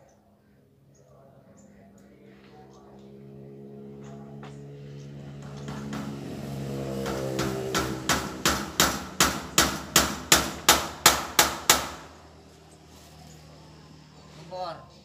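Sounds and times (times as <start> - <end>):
hammer striking steel door: 5.4 - 12.1.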